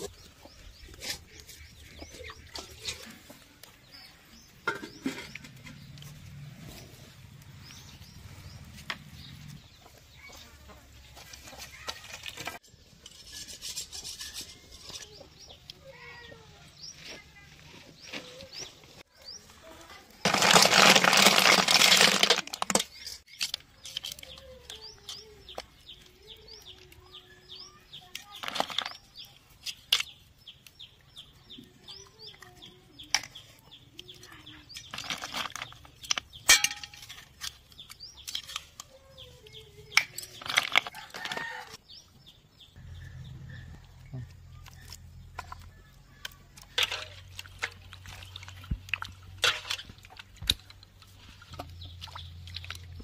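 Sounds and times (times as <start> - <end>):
small birds chirping: 0.0 - 20.2, 21.8 - 53.0
water pouring onto ground: 20.2 - 22.8
snail shells clicking: 20.3 - 27.1.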